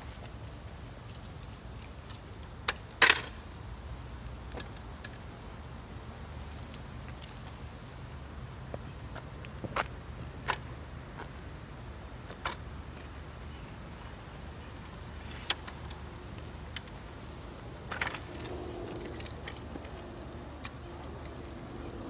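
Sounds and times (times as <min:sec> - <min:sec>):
wheels rolling on asphalt: 0:00.0 - 0:03.2, 0:15.1 - 0:22.0
scooter metal clicks and snaps: 0:01.1 - 0:03.4, 0:15.4 - 0:16.0.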